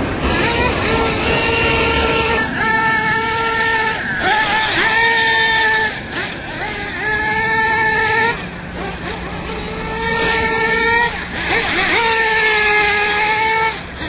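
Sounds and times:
rc car engine revving high: 0.0 - 14.0.

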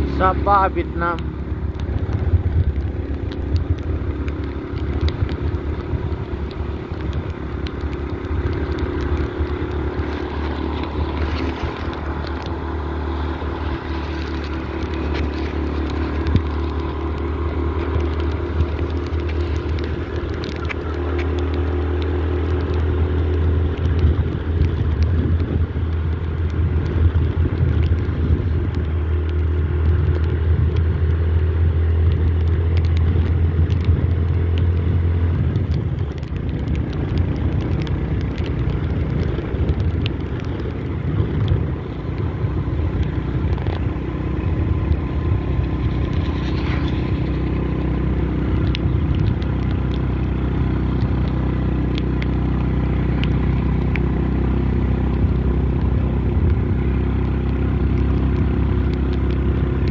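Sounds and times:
road and wind noise: 0.0 - 59.9
small clicks and rattles: 0.2 - 59.9.

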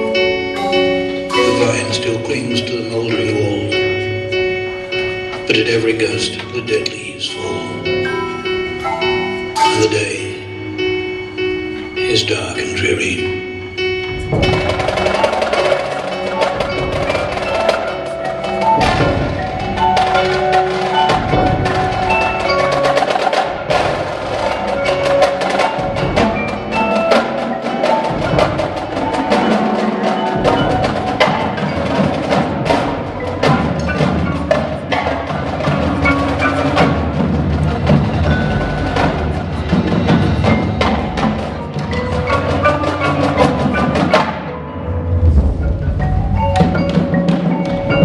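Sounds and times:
marimbas playing notes: 0.0 - 48.0
snare and tenor drums: 14.2 - 44.5.

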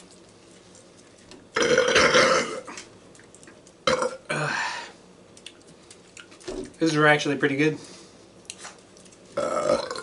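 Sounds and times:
man burping: 1.6 - 2.8, 3.8 - 4.7, 9.4 - 10.0.

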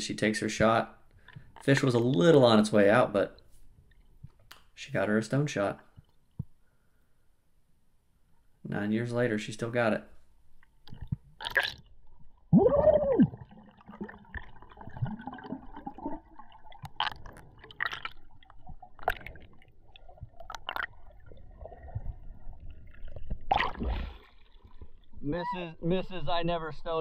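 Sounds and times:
underwater gurgling: 10.9 - 25.2
underwater clicks: 20.3 - 21.0.

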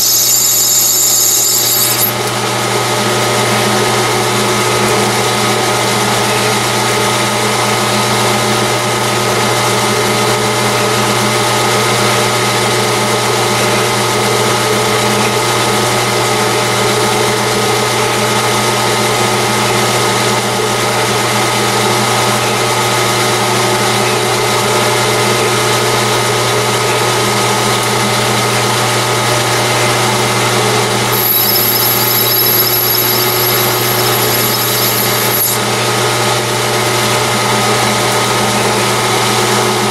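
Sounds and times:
thin high whine: 0.0 - 2.3, 31.2 - 35.6
metal lathe humming: 0.0 - 3.3, 30.4 - 36.6.

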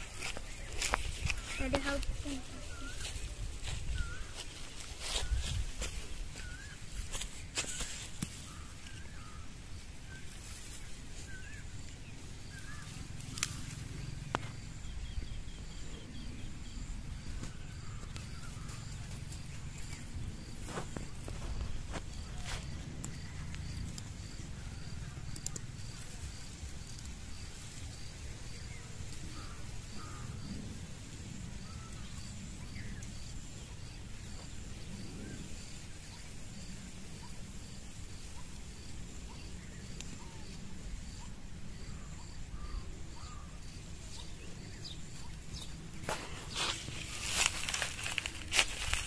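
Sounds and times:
insect chirping: 0.0 - 49.0
plants rustling being pulled: 46.0 - 49.0.

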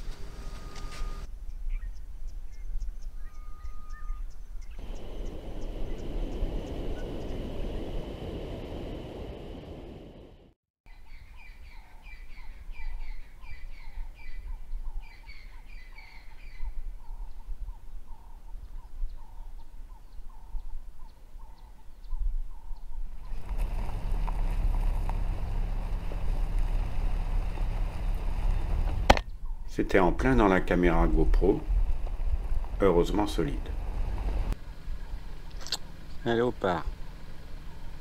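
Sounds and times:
car driving on dirt road: 4.8 - 10.5, 23.2 - 29.2, 30.4 - 38.0.

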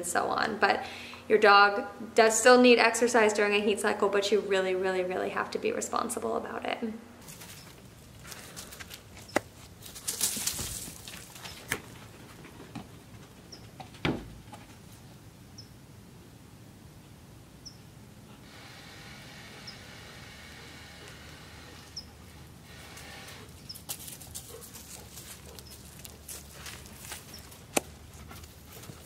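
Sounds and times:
rustle of dry leaves: 7.2 - 11.7, 18.5 - 29.0.

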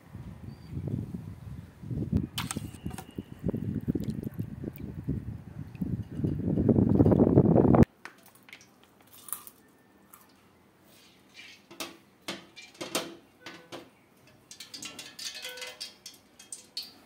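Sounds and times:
clinks on a steel pan: 14.3 - 17.0.

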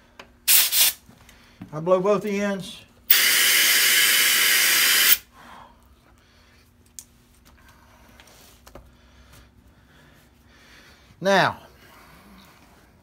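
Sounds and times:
compressed air blow gun hiss: 0.5 - 1.0, 3.1 - 5.2.

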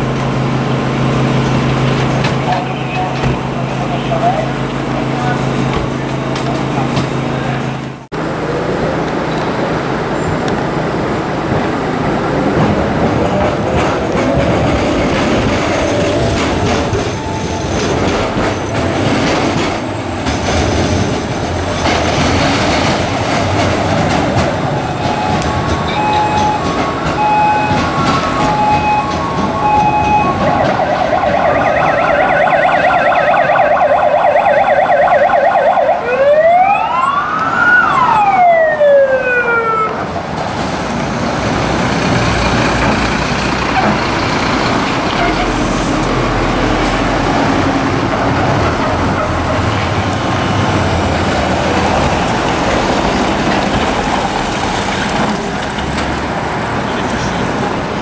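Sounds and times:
city traffic: 0.0 - 58.0
fire engine sirens wailing: 0.0 - 58.0
heavy truck engines: 0.0 - 58.0
siren yelp: 25.0 - 40.1.

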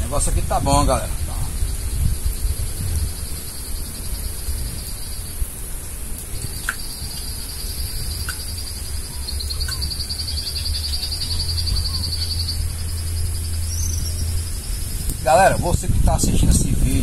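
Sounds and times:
insects fast-pulsing trill: 0.0 - 15.9
insects high-pitched drone: 0.0 - 15.9
bird chirps: 6.4 - 15.3.

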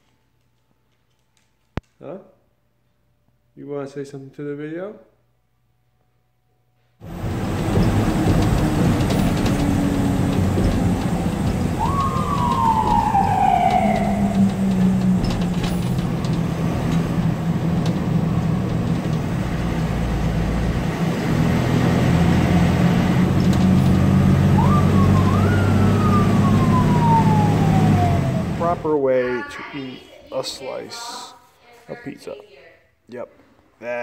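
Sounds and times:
fire engine cab drone: 7.0 - 29.0
siren winding up: 9.8 - 17.0, 23.8 - 28.8.

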